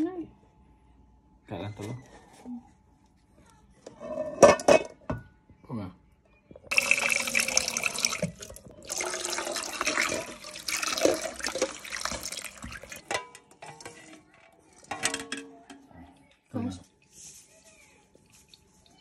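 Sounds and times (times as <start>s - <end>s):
eggs knocking in pot: 6.7s - 13.3s
tap water running into pot: 6.7s - 14.0s.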